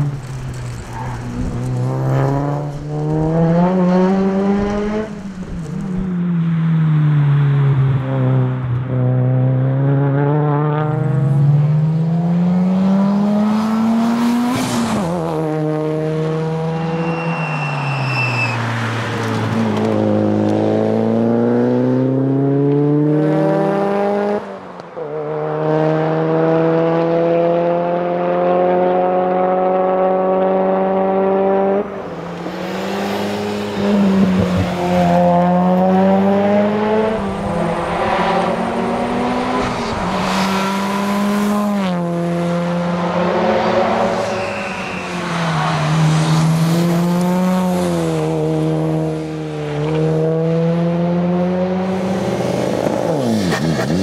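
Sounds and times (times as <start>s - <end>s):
car engine revving through gears: 0.0s - 6.1s, 8.1s - 17.1s, 18.8s - 44.6s, 45.2s - 54.0s
short high squeal: 16.8s - 18.7s, 44.2s - 45.6s.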